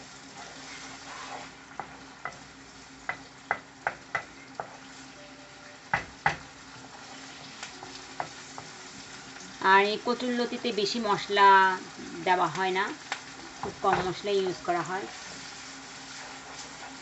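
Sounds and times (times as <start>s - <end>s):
onion frying in hot oil: 0.0s - 17.0s
spatula knocking against pan: 3.0s - 4.8s, 5.9s - 6.5s.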